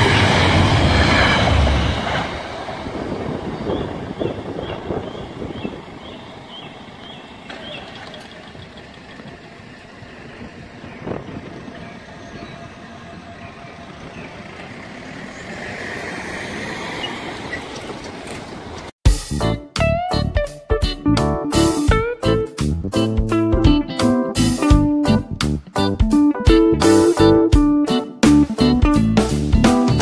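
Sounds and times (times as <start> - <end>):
road traffic rumble: 0.0 - 19.0
vehicle approaching: 0.0 - 19.0
wind: 0.0 - 19.0
level crossing alarm chirps: 3.7 - 9.4.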